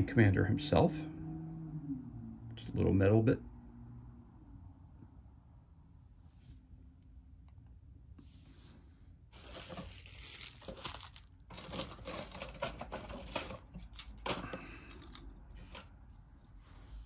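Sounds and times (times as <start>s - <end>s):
plastic packaging crinkling: 9.3s - 14.2s.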